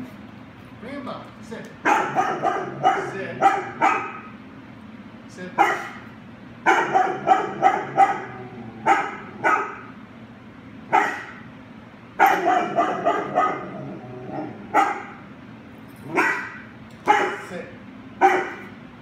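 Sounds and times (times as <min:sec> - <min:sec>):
dog barking: 0:01.8 - 0:04.4, 0:05.6 - 0:10.0, 0:10.9 - 0:11.4, 0:12.2 - 0:15.3, 0:16.1 - 0:17.5, 0:18.2 - 0:18.7.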